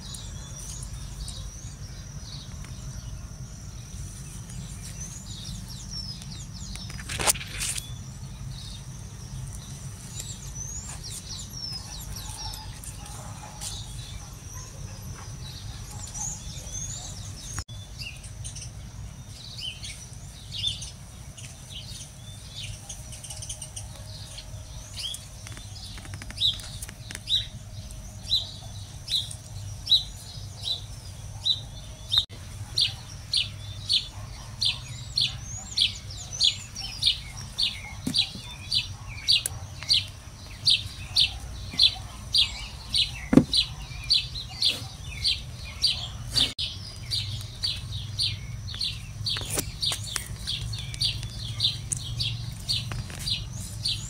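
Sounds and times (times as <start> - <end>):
small birds chirping: 0.0 - 54.0
steady low rumble: 46.6 - 54.0.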